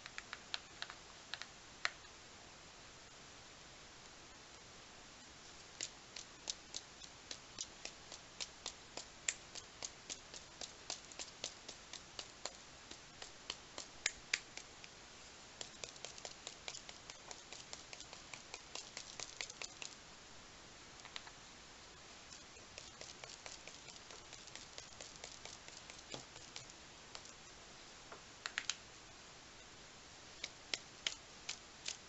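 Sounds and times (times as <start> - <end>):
paintbrush tapping against finger: 5.8 - 15.0, 15.6 - 20.0, 22.3 - 27.4.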